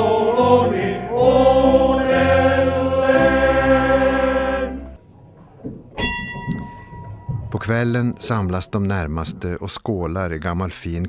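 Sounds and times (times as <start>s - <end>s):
male choir singing: 0.0s - 5.0s
large bell ringing: 6.0s - 9.2s.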